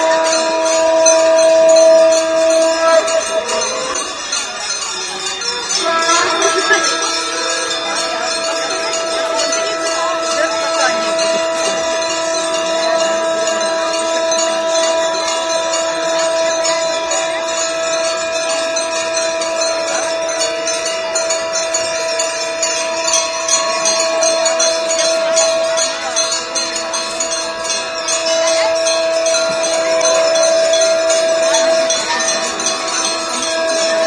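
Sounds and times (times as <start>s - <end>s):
hand bells ringing: 0.0s - 34.0s.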